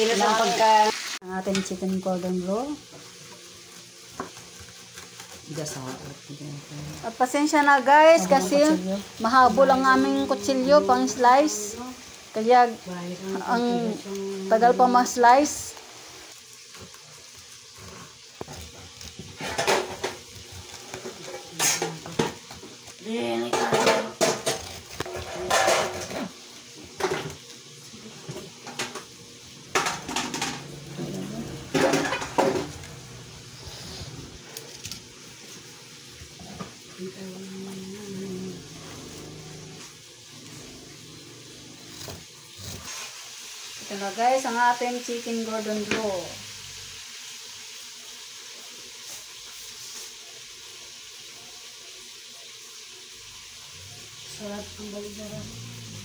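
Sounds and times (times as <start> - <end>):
knife scraping cutting board: 3.2 - 6.1, 41.4 - 43.3
knife sawing through crisp crust: 3.4 - 7.2, 16.6 - 23.4, 37.9 - 43.6.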